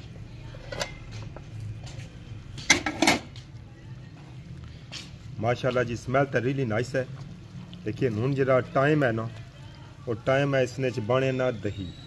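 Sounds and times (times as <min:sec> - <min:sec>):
metal lid clattering: 0:02.6 - 0:03.3.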